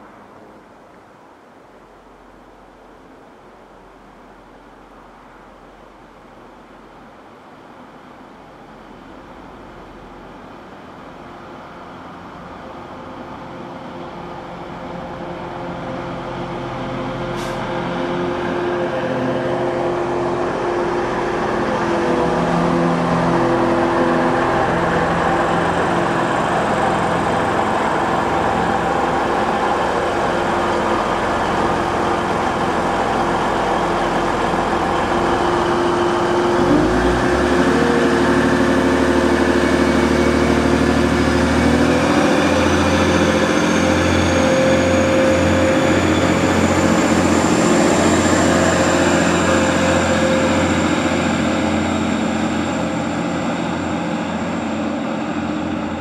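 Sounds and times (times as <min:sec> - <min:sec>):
diesel train engine droning: 0:02.1 - 0:56.0.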